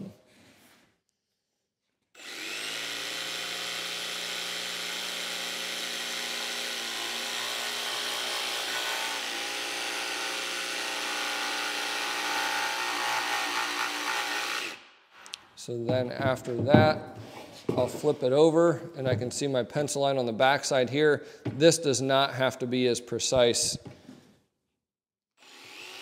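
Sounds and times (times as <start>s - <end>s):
jigsaw cutting wood: 2.2s - 14.8s, 25.4s - 26.0s.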